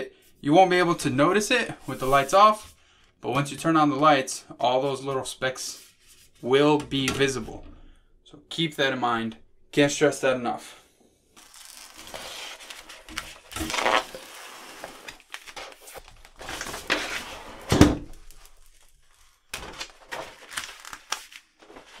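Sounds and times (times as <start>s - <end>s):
plastic film rustling and crinkling: 11.4s - 22.0s.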